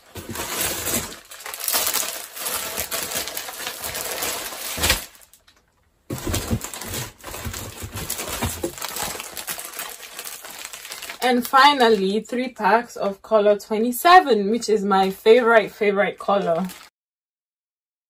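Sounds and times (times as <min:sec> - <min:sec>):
plastic packaging crinkling: 0:00.0 - 0:12.2, 0:16.3 - 0:16.9.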